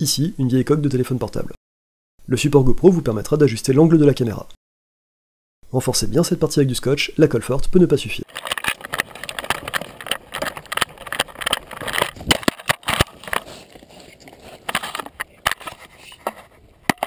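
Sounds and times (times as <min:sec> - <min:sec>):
gear rubbing against camera: 0:08.2 - 0:17.0.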